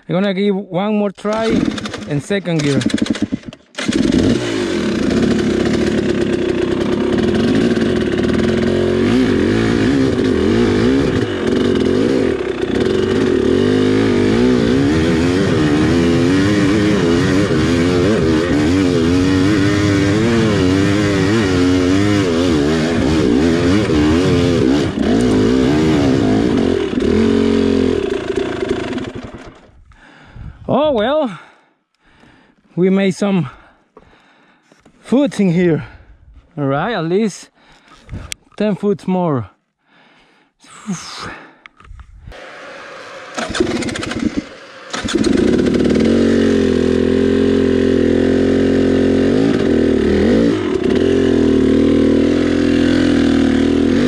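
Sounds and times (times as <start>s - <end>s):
dirt bike engine revving: 1.3s - 29.7s, 42.3s - 54.0s.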